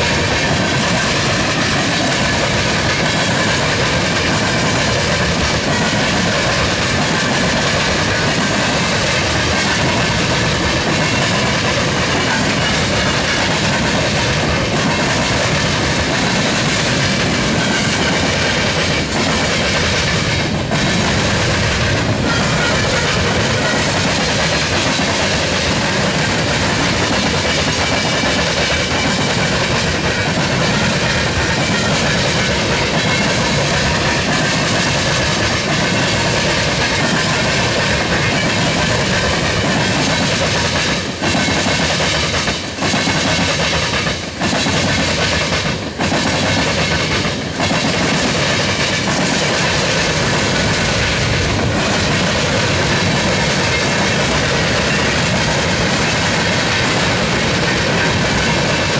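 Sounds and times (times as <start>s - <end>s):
freight train rolling past: 0.0s - 58.9s.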